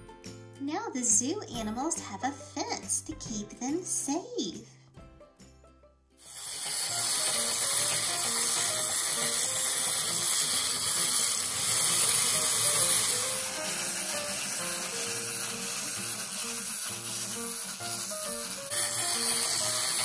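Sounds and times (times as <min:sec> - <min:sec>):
light background music: 0:00.0 - 0:20.0
clockwork toys whirring: 0:06.2 - 0:20.0.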